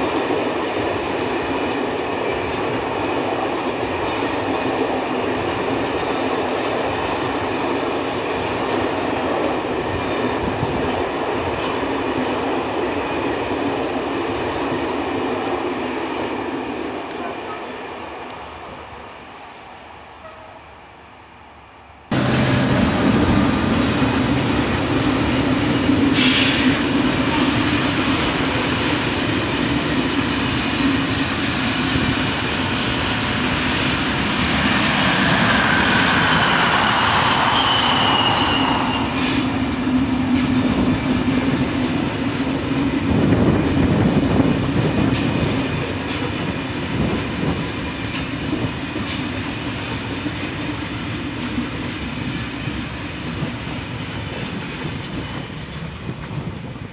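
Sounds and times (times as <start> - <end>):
passing train hum: 0.0 - 56.9
wheel squeal: 4.1 - 5.3.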